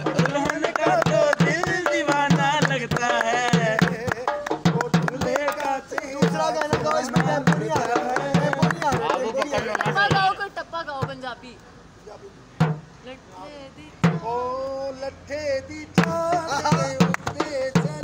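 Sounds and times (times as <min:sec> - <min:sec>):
voices singing: 0:00.0 - 0:11.3, 0:13.0 - 0:18.0
barrel drum rhythm: 0:00.0 - 0:11.4, 0:12.6 - 0:13.0, 0:14.0 - 0:14.3, 0:16.0 - 0:18.0.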